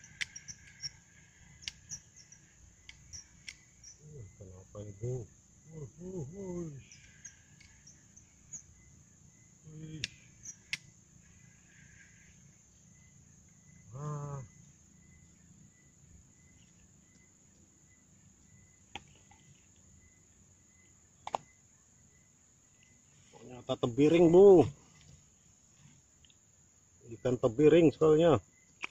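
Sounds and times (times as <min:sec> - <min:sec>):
sharp clicks: 0:00.0 - 0:02.1, 0:02.8 - 0:03.8
insects droning and chirping: 0:00.0 - 0:28.9.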